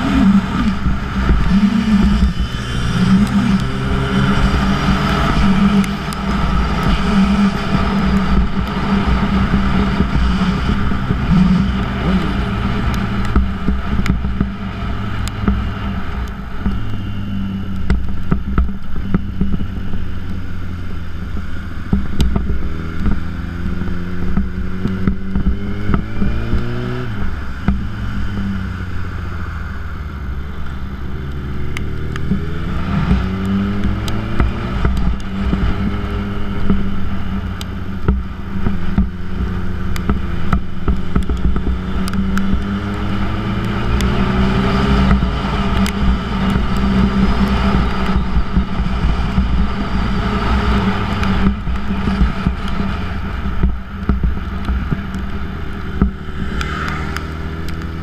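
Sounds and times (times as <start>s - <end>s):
wind rush: 0.0s - 18.2s
motorcycle engine accelerating: 0.0s - 58.0s.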